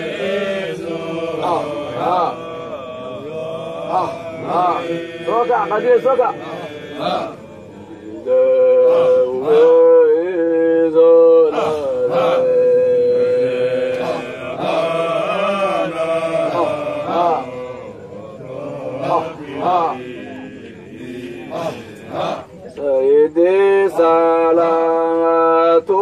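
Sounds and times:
person chanting: 0.0 - 26.0.

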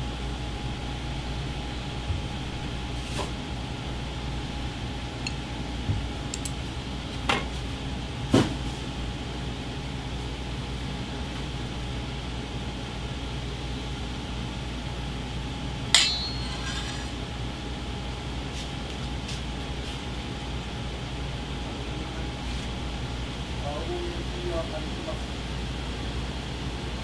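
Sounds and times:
kitchen hum: 3.0 - 7.0, 15.9 - 17.8
utensils clinking on dish: 16.0 - 17.2.

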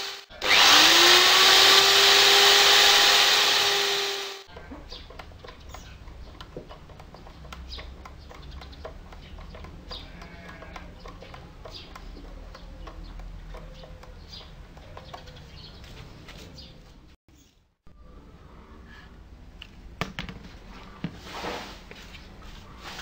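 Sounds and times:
birds calling: 4.5 - 17.5.

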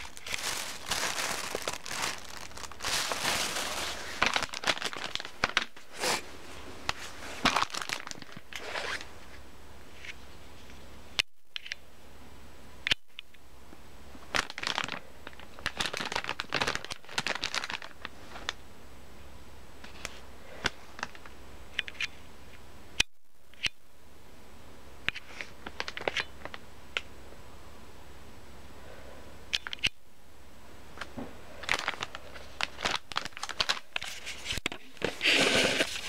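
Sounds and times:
plastic packaging crinkling: 0.0 - 6.2, 6.9 - 9.1, 14.3 - 18.6, 31.6 - 36.0.

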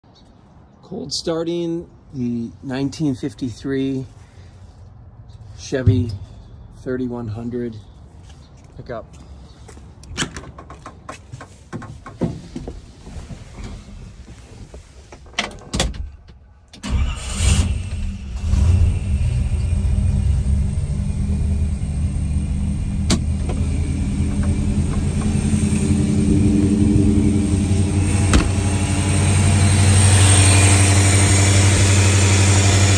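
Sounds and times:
car engine starting and idling: 16.7 - 32.9.

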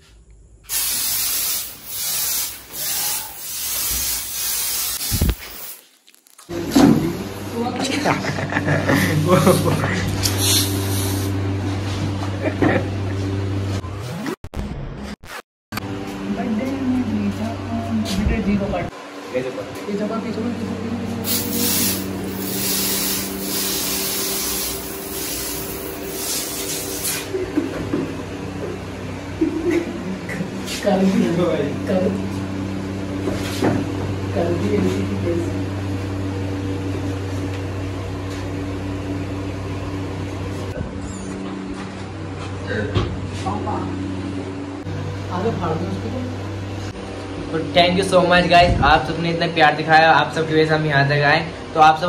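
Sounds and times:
aerosol spray hissing: 0.7 - 5.8, 10.3 - 11.4, 21.2 - 27.3.

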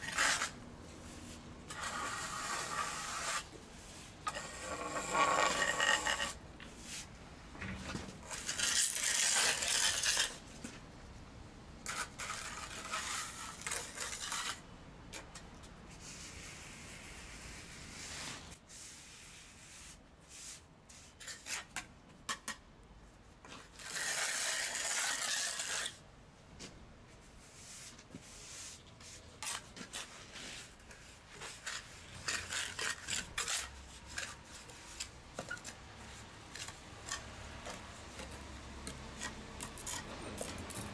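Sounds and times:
trowel scraping mortar on stone: 0.0 - 0.6, 1.7 - 3.6, 4.2 - 7.0, 8.2 - 10.4, 11.8 - 15.4, 23.6 - 26.0, 28.3 - 40.9.

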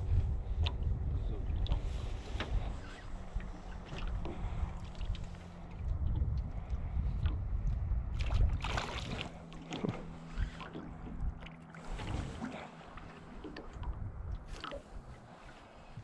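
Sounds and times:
wind rumble on microphone: 0.0 - 16.0
water splashing: 8.1 - 15.9.

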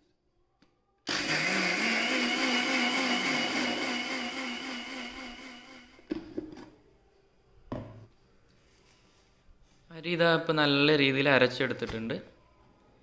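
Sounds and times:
mixer grinder whining: 1.1 - 6.1.

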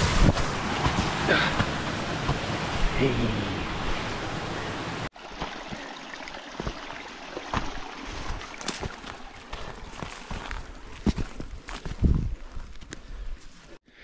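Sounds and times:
boot footsteps on gravel: 7.5 - 12.9.

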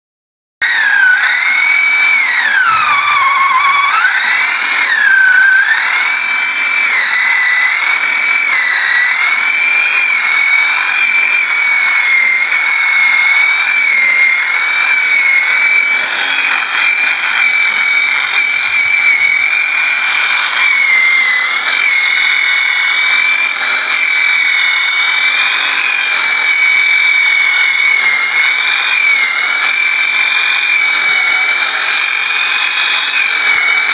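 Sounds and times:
electric chainsaw cutting log: 0.6 - 33.9.

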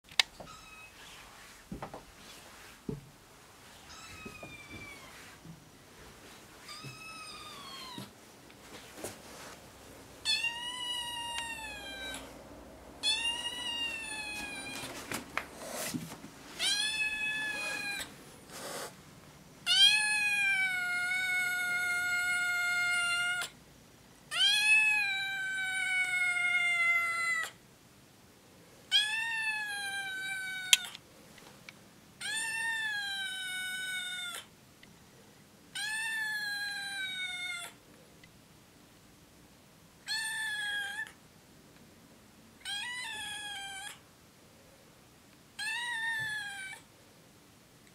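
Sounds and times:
kitten meowing: 3.9 - 5.2, 6.7 - 8.1, 10.2 - 12.3, 13.0 - 14.9, 16.6 - 18.1, 19.6 - 23.5, 24.3 - 27.6, 28.9 - 31.0, 32.2 - 34.5, 35.8 - 37.8, 40.1 - 41.2, 42.6 - 44.0, 45.6 - 46.8.

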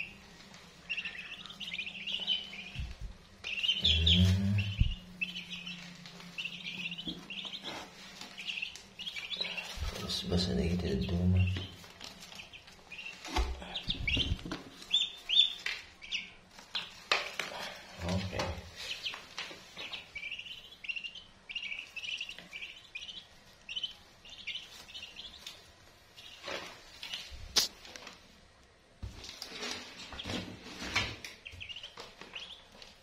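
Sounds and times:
ducklings peeping: 0.0 - 27.9, 29.1 - 33.0.

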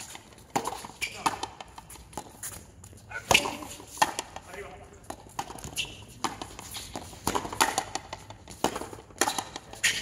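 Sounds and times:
ball striking rackets and wall: 0.0 - 10.0.

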